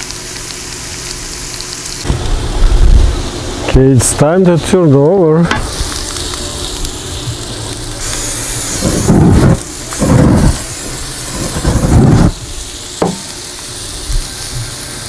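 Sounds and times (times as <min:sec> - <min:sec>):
food sizzling on a grill: 0:00.0 - 0:15.0
aerosol cooking spray hissing: 0:03.2 - 0:15.0.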